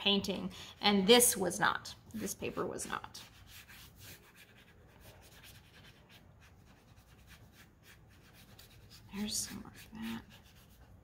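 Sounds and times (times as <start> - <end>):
brush rubbing on paper: 2.4 - 11.0.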